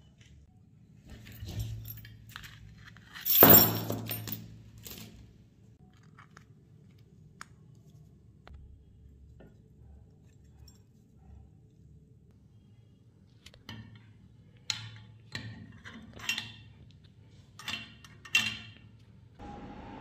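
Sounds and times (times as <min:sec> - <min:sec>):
metal parts clattering: 0:01.2 - 0:05.2.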